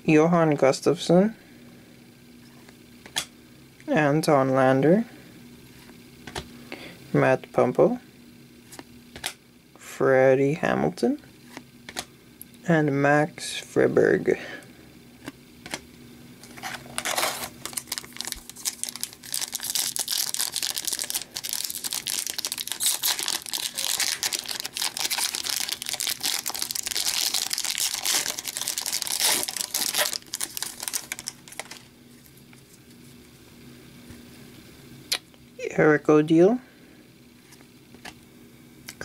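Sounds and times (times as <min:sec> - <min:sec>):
wrapper crinkling and tearing: 0:16.5 - 0:31.9.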